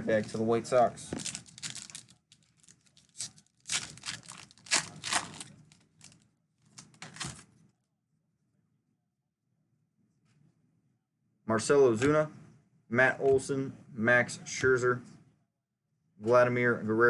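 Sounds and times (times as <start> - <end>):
wrapper ripping and rustling: 1.1 - 7.5.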